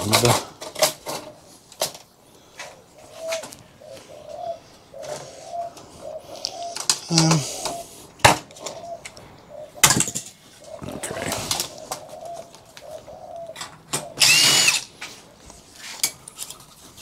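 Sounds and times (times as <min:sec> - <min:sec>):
bird cooing: 0:02.3 - 0:14.9.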